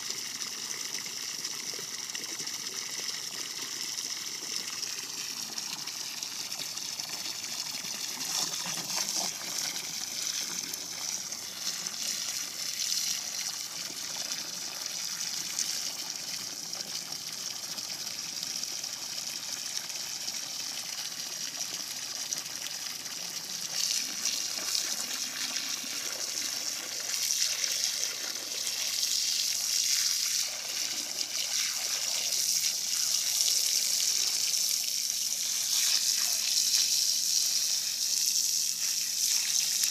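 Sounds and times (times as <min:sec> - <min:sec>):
hose water splashing: 0:03.2 - 0:16.5, 0:23.1 - 0:39.9.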